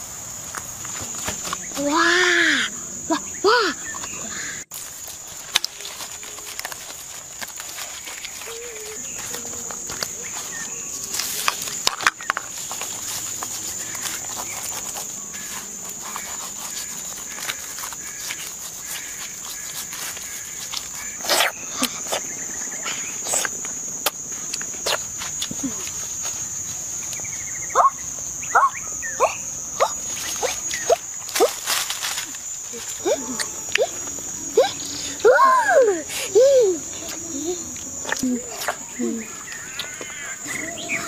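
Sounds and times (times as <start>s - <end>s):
insects buzzing: 0.0s - 41.0s
footsteps rustling dry leaf litter: 4.7s - 21.2s, 30.0s - 34.2s.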